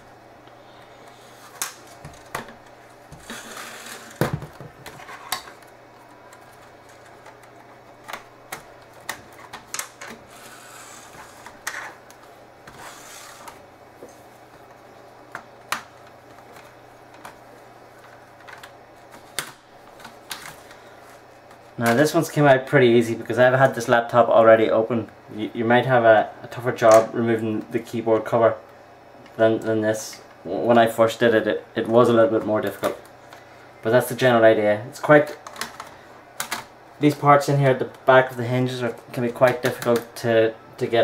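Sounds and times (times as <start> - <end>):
plastic scraping: 0.9 - 12.0.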